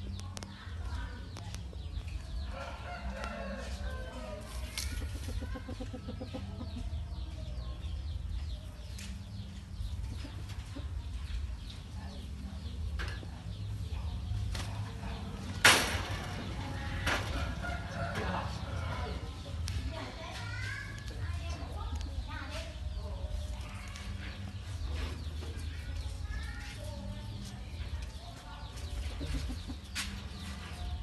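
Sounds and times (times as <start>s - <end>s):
chicken clucking: 1.9s - 7.7s, 28.0s - 30.9s.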